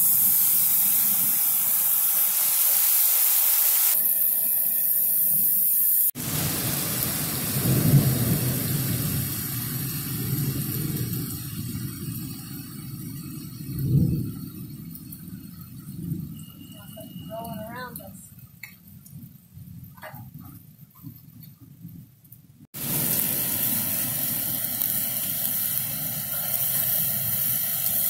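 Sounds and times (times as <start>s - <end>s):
steaks sizzling on grill: 0.0s - 12.9s, 22.8s - 28.0s.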